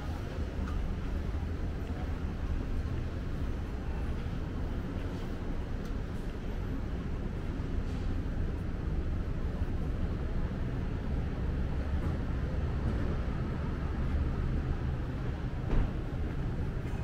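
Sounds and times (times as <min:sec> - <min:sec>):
city street traffic rumble: 0:00.0 - 0:17.0
brief knock: 0:15.7 - 0:15.9.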